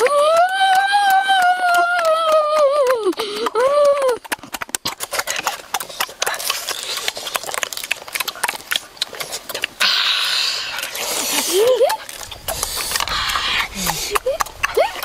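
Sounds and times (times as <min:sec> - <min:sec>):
crunching crab shells: 0:04.2 - 0:09.9.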